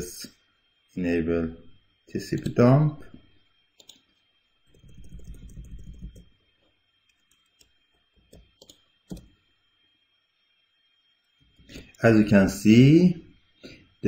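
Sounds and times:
keyboard and mouse clicks: 3.8 - 4.1, 4.7 - 6.2, 8.3 - 9.3
low muffled rumble: 4.8 - 6.2.

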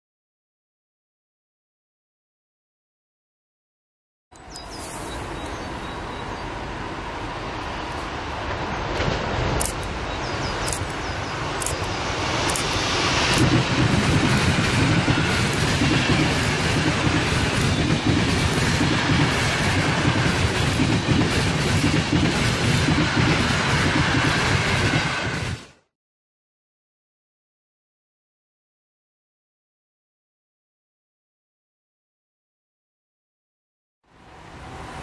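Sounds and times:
train wheels rumbling and clacking: 4.4 - 25.9
sharp clicks: 9.6 - 9.9, 10.6 - 11.0, 11.6 - 13.5.

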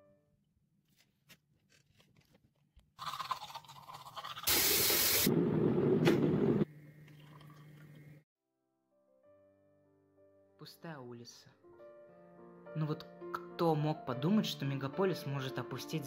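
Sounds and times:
electric kettle boiling hiss: 4.5 - 7.0.

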